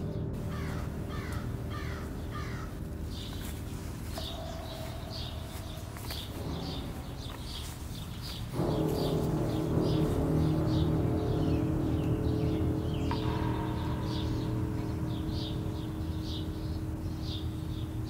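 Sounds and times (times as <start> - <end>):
low steady drone: 0.0 - 18.0
small bird chirping: 0.1 - 18.0
crow cawing: 0.4 - 12.1.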